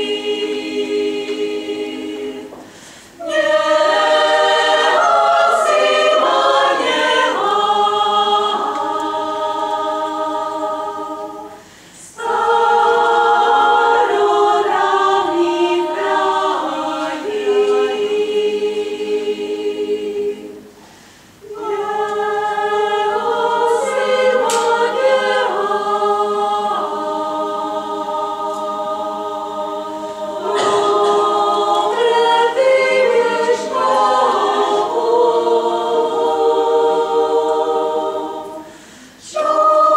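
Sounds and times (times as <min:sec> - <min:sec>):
choir singing in harmony: 0:00.0 - 0:39.9
breaths between phrases: 0:38.6 - 0:39.2.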